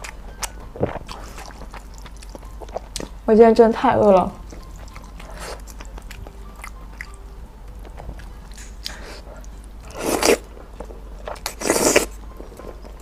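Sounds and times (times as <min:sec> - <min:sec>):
soft chewing: 0:00.0 - 0:03.2, 0:04.4 - 0:13.0
noodles slurped noisily: 0:11.4 - 0:12.1.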